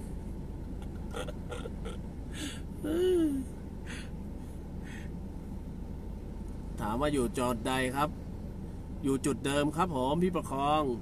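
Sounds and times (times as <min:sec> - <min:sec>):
low background hum: 0:00.0 - 0:11.0
low vocal hm: 0:00.8 - 0:04.1
man breathing: 0:02.3 - 0:02.7, 0:03.8 - 0:05.2.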